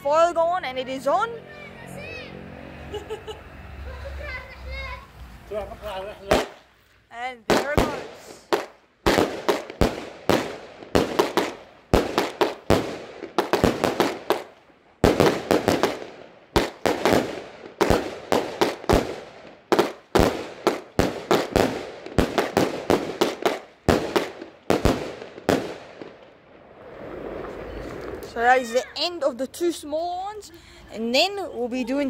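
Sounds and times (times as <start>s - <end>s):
firework bangs with echo: 6.2s - 6.7s, 7.5s - 28.7s.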